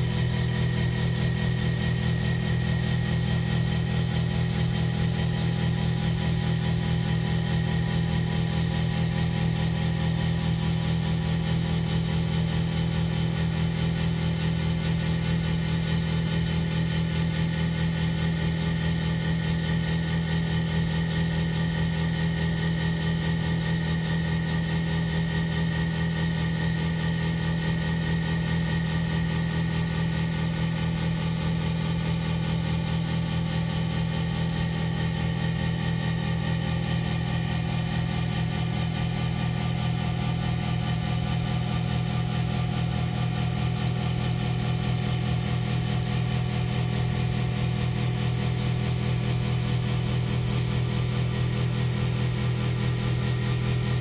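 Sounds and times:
lathe running with high whine: 0:00.0 - 0:11.8.

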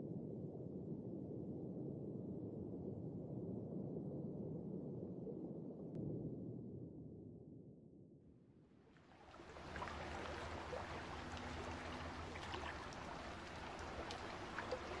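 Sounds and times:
muffled underwater rumble: 0:00.0 - 0:07.6, 0:09.1 - 0:15.0
sea water lapping and trickling: 0:09.0 - 0:15.0
water drips and splashes: 0:09.0 - 0:15.0.

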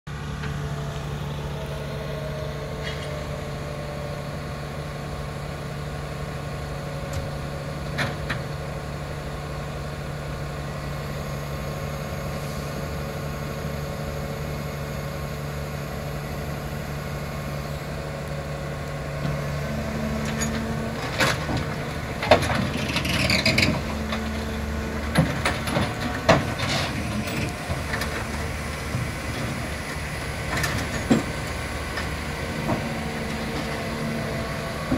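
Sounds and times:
diesel engine idling: 0:00.1 - 0:34.9
metal clanks and knocks: 0:20.2 - 0:28.3, 0:30.4 - 0:31.5.

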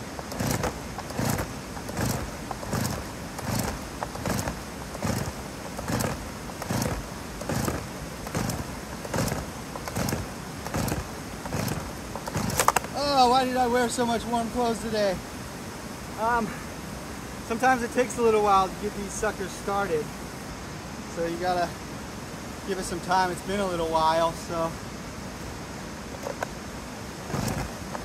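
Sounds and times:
chainsaw recoil starter pulls: 0:00.0 - 0:13.0, 0:26.2 - 0:26.5, 0:27.3 - 0:28.0.

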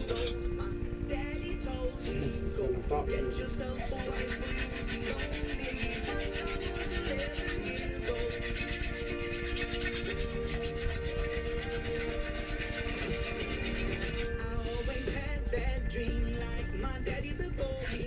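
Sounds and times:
abrasive block rasping on metal: 0:03.7 - 0:15.2, 0:17.6 - 0:18.0.

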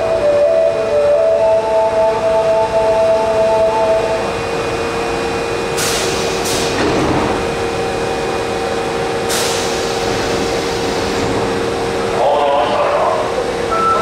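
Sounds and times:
air brake hisses: 0:05.8 - 0:06.8, 0:09.3 - 0:11.2.

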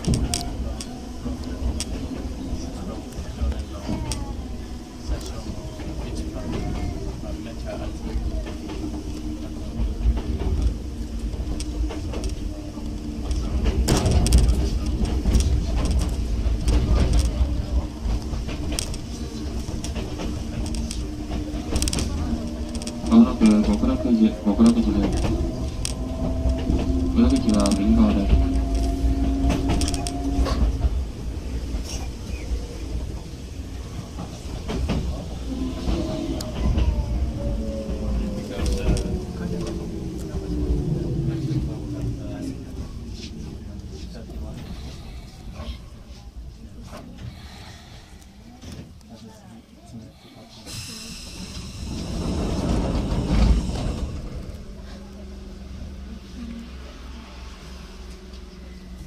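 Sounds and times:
train rumble and motor hum: 0:00.0 - 0:59.0
wheels clattering over rail joints: 0:13.0 - 0:33.2.

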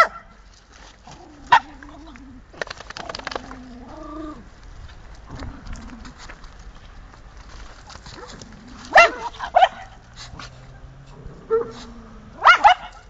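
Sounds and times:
dog barking: 0:00.0 - 0:00.3, 0:08.9 - 0:10.0, 0:12.4 - 0:13.0.

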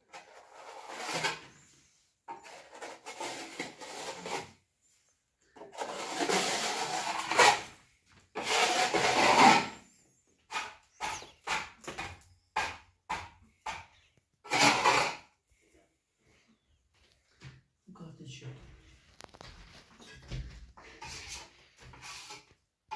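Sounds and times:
trowel scraping wet plaster: 0:00.0 - 0:04.6, 0:05.5 - 0:15.3, 0:20.8 - 0:22.6.

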